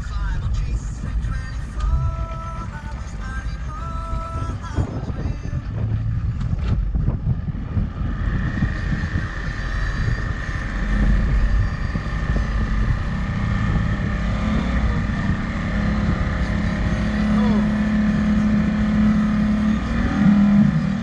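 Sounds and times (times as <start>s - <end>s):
motorboat engine running: 0.0s - 21.0s
wind buffeting microphone: 0.0s - 21.0s.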